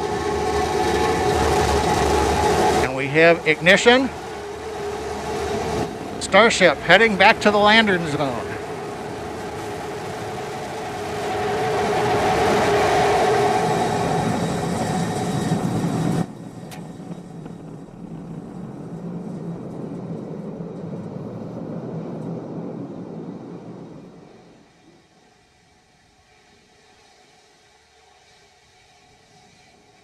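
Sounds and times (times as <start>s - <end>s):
rocket engine roaring: 0.0s - 25.0s
low rumble: 13.8s - 24.6s.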